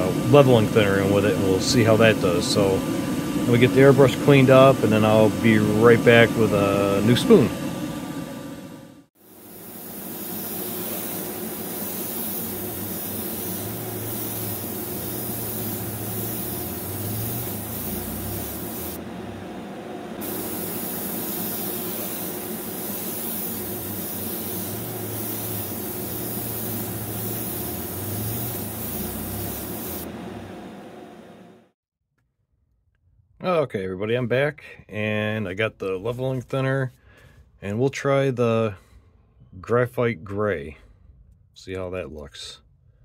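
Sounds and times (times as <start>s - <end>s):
air spraying hiss: 9.2s - 19.0s, 20.2s - 30.1s
low hum: 10.8s - 31.3s.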